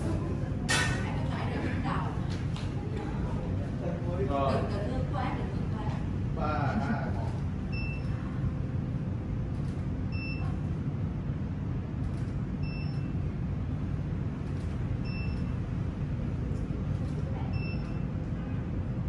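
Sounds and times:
low background rumble: 0:00.0 - 0:19.0
faint high beep: 0:12.6 - 0:13.1, 0:17.5 - 0:18.0.

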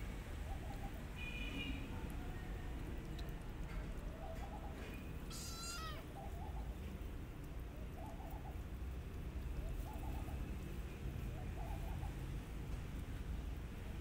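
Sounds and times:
dove cooing: 0:07.9 - 0:08.6, 0:09.6 - 0:10.4, 0:11.3 - 0:12.2.

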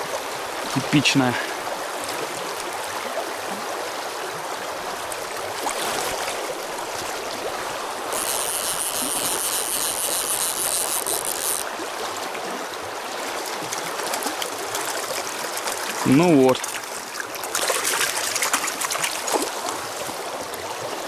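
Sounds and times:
river rushing over stones: 0:00.0 - 0:21.0
fishing reel ratchet buzzing: 0:08.0 - 0:11.7.

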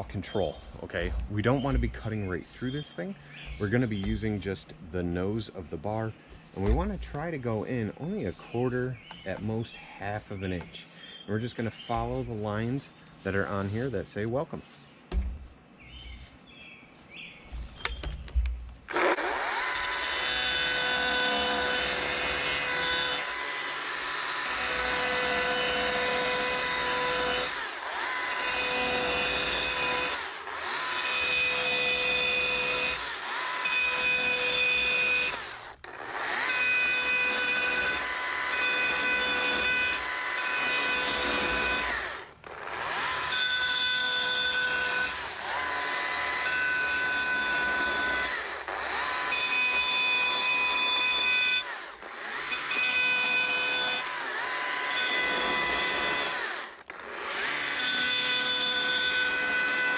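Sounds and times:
chainsaw cutting wood: 0:18.8 - 0:59.9.

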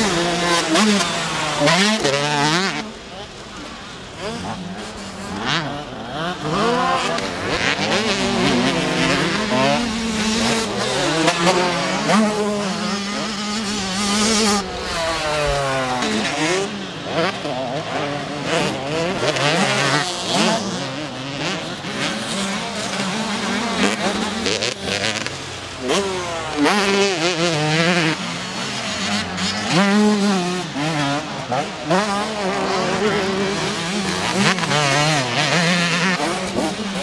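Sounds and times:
motocross bikes revving: 0:00.0 - 0:37.0.

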